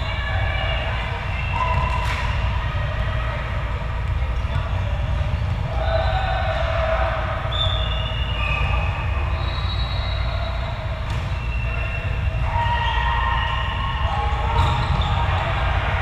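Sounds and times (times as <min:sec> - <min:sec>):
low hum of hall: 0:00.0 - 0:16.0.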